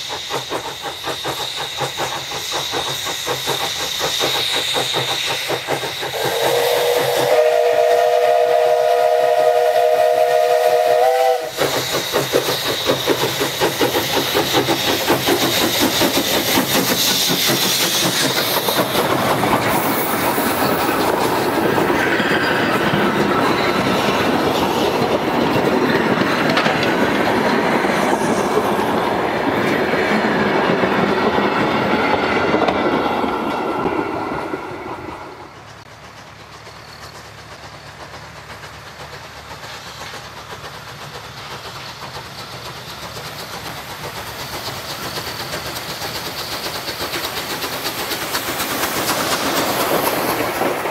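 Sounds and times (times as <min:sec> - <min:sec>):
train clattering over rail joints: 0:00.0 - 0:50.9
steam locomotive whistle: 0:05.8 - 0:12.2.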